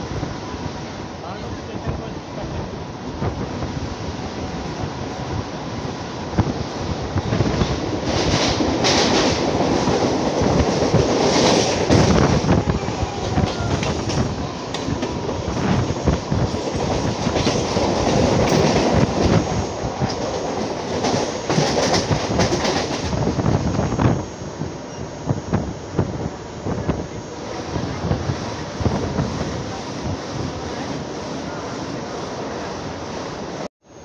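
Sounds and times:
electric train rumbling: 0.0 - 34.0
train wheels clacking: 7.2 - 23.4.

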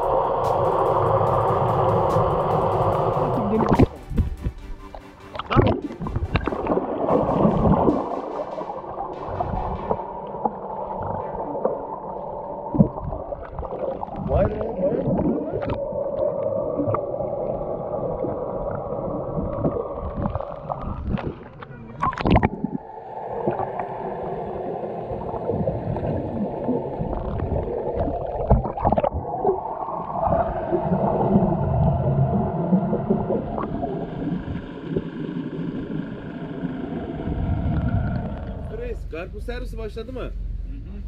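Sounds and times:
water splashing: 0.0 - 38.7
muffled underwater bubbling: 0.0 - 38.8.

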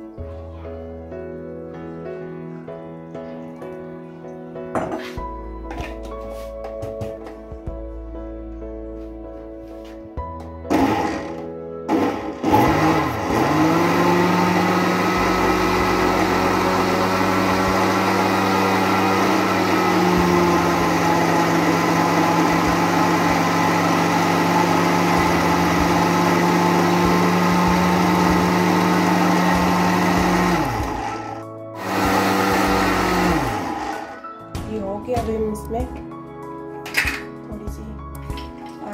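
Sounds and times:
blender motor running: 10.7 - 34.2.

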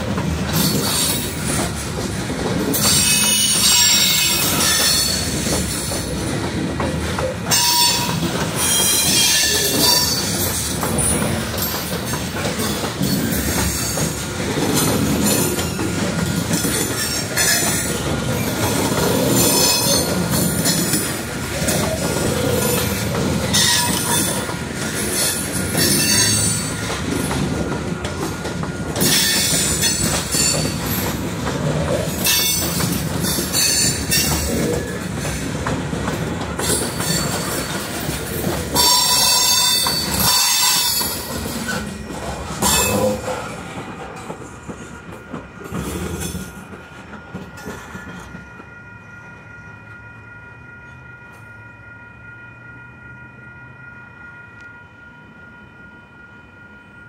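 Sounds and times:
train wheels rumbling on rail: 0.0 - 51.5
high-pitched wheel squeals: 7.5 - 10.3.

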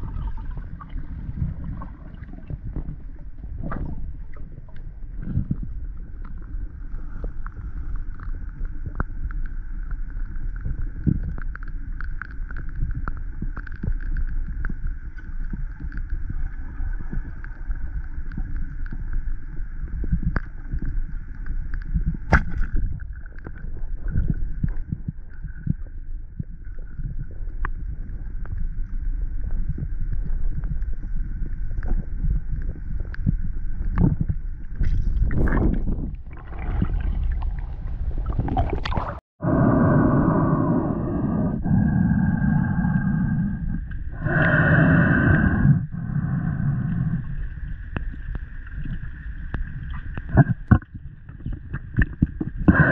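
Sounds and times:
faint steady hum: 0.0 - 52.9
underwater low rumble: 0.0 - 52.9
rush of noise: 39.4 - 47.3.

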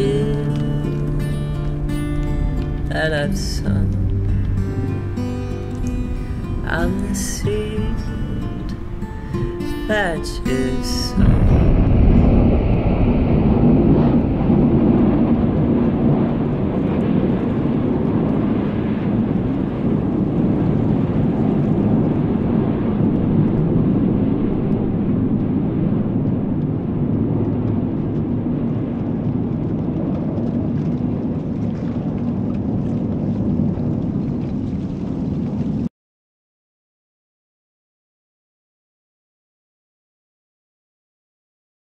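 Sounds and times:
low rumble: 0.0 - 35.9
faint light ticks: 0.2 - 2.8.

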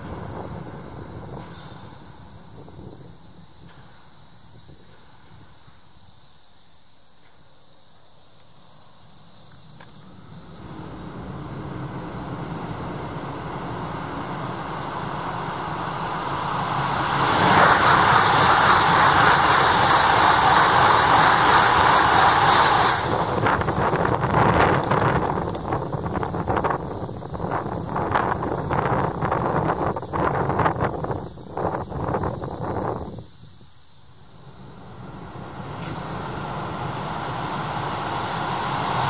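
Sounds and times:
high-speed train roaring past: 0.0 - 4.8, 9.6 - 33.2, 34.1 - 39.0.

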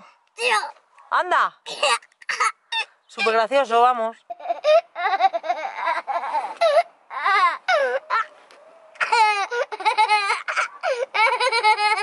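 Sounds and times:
young boy laughing: 4.3 - 8.3, 9.0 - 12.0.

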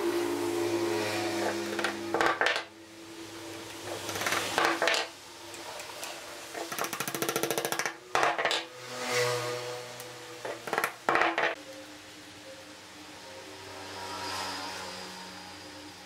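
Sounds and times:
hammer tapping wooden pegs: 1.7 - 2.7, 3.9 - 5.1, 6.6 - 8.7, 10.4 - 11.6.

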